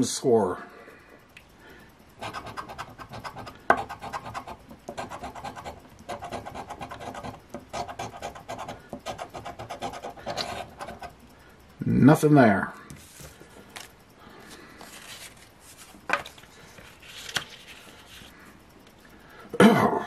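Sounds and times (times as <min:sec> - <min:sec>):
coin scratching lottery ticket: 0:02.2 - 0:11.2.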